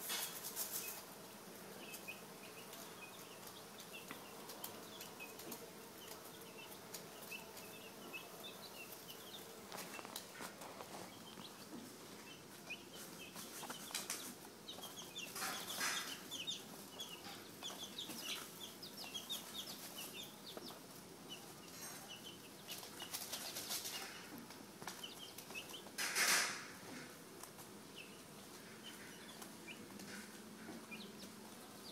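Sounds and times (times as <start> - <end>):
rustling and fluttering: 0.0 - 1.2, 12.6 - 16.2, 21.7 - 27.7
chicks peeping: 0.0 - 31.9.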